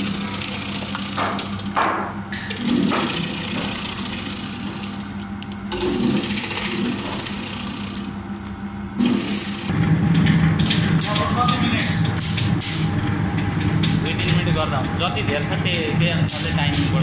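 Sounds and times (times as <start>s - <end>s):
slicing machine motor humming: 0.0s - 10.0s.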